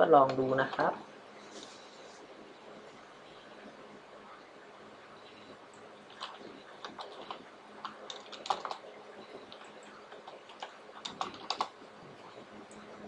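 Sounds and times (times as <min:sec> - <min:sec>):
keyboard typing clicks: 0:05.7 - 0:11.8.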